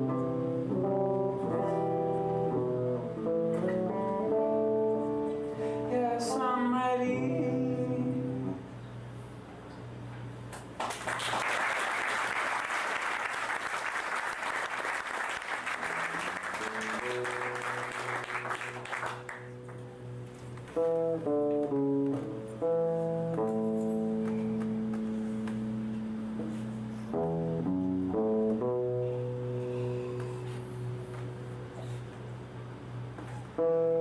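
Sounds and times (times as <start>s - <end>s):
solo electric guitar: 0.0s - 10.3s, 15.4s - 34.0s
audience applauding: 10.8s - 19.8s.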